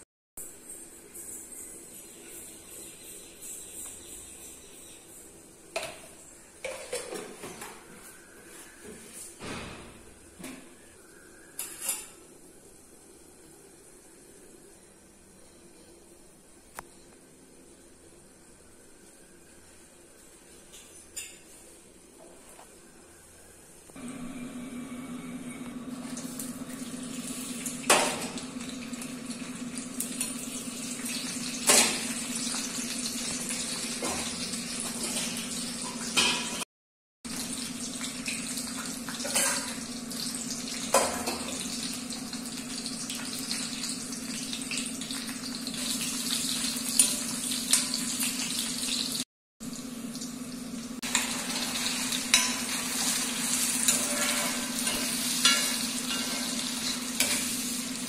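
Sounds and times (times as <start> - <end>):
oil sizzling in a pan: 24.0 - 36.6, 37.3 - 58.0.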